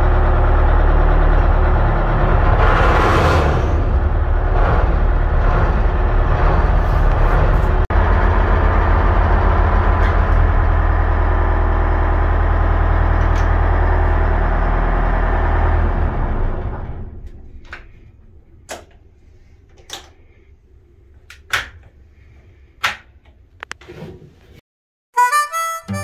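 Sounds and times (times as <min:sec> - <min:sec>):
diesel engine running: 0:00.0 - 0:18.6.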